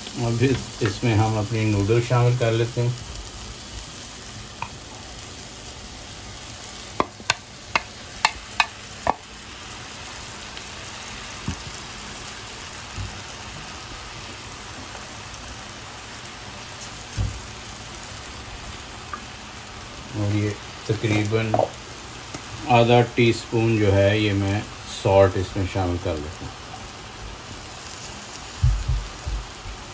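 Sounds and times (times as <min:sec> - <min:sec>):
noodles sizzling in a wok: 0:00.0 - 0:29.9
spatula knocking against wok: 0:07.0 - 0:09.3.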